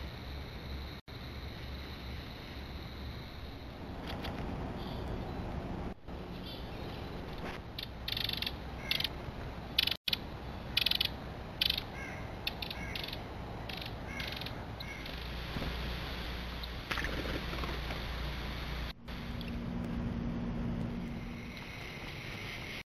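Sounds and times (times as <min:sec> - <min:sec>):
harsh raspy bird calls: 0:07.8 - 0:09.2, 0:09.8 - 0:15.3.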